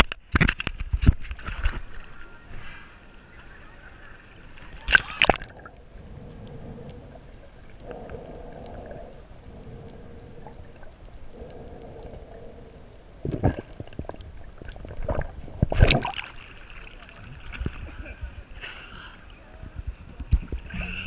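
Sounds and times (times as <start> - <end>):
faint hum: 2.0 - 21.0
water splashing and rushing: 4.4 - 11.7, 12.8 - 18.5.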